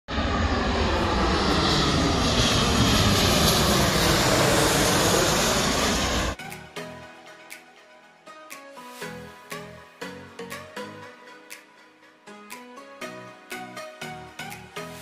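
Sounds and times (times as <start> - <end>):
jet airliner flying overhead: 0.1 - 6.5.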